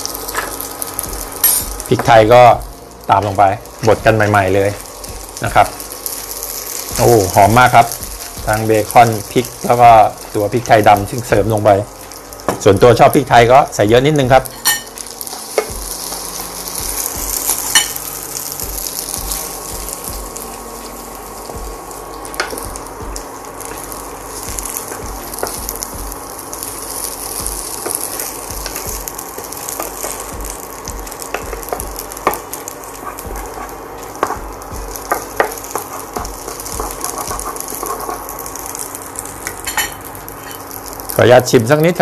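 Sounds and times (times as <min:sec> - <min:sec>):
food sizzling in hot oil: 0:00.0 - 0:42.0
utensils knocking against pan: 0:35.1 - 0:38.2.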